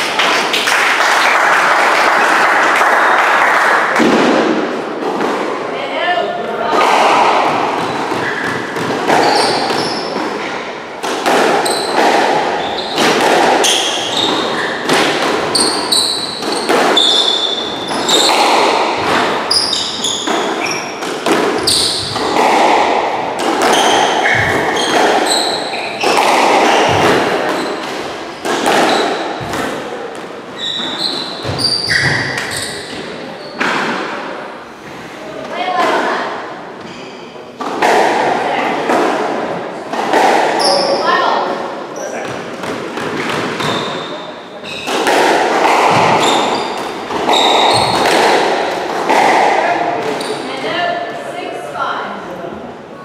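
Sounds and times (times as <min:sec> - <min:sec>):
squash ball struck by racquets: 0:03.8 - 0:05.7, 0:06.6 - 0:34.3, 0:37.6 - 0:50.8
shoes squeaking on wooden floor: 0:07.7 - 0:10.6, 0:11.6 - 0:22.4, 0:23.5 - 0:29.6, 0:30.5 - 0:33.8, 0:36.8 - 0:37.3, 0:43.1 - 0:48.4, 0:50.0 - 0:50.6.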